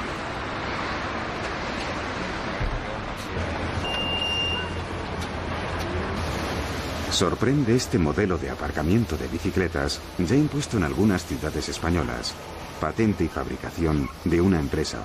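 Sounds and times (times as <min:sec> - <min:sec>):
street background noise: 0:00.0 - 0:15.0
short electronic beep: 0:03.8 - 0:04.8.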